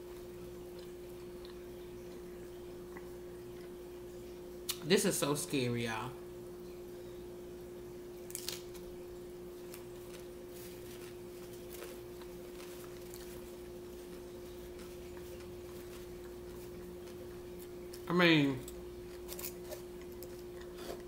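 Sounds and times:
chewing taco: 0:00.0 - 0:04.0, 0:09.6 - 0:21.0
steady hum: 0:00.0 - 0:21.0.

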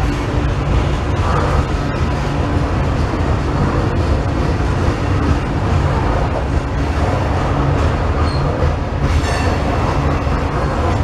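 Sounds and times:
freight train wheels rumbling on rail: 0:00.0 - 0:11.0
high wheel squeal: 0:08.2 - 0:08.6.

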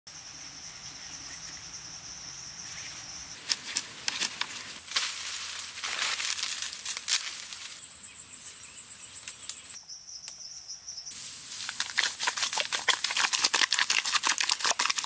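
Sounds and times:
sticks and leaf litter rustling: 0:03.4 - 0:07.9, 0:11.2 - 0:15.0.

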